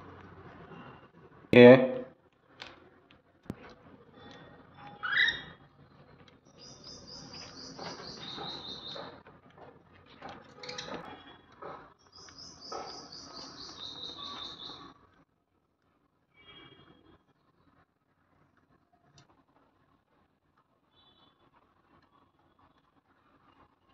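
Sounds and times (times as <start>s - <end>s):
budgerigars chirping: 6.6s - 9.2s, 12.2s - 14.9s.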